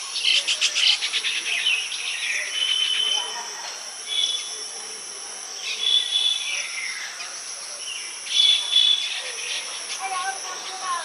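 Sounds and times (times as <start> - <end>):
high insect buzz: 0.0 - 11.0
birds calling with sliding notes: 5.6 - 11.0.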